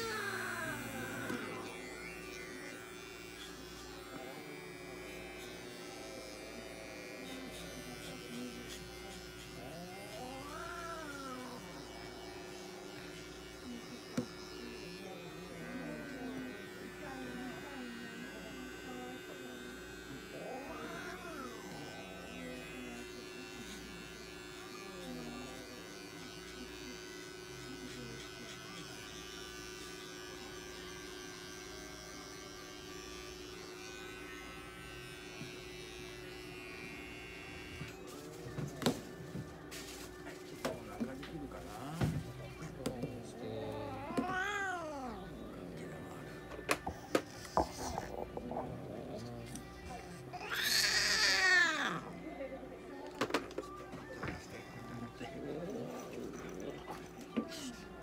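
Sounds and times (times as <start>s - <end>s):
electric pet clipper buzzing: 0.0s - 38.1s, 49.2s - 52.0s.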